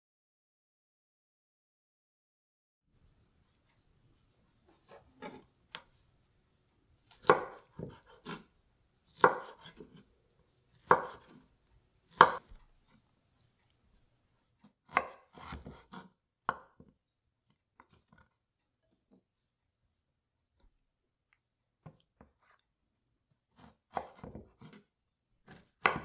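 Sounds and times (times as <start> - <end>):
knife cutting on wooden board: 4.9 - 5.8, 7.1 - 8.5, 9.1 - 10.1, 10.7 - 11.5, 12.1 - 12.6, 14.8 - 16.6, 23.6 - 26.0.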